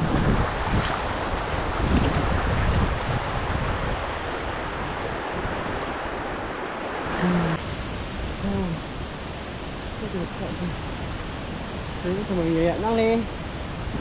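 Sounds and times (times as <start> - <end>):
stream water flowing: 0.0 - 14.0
short vocal sound: 7.2 - 7.6.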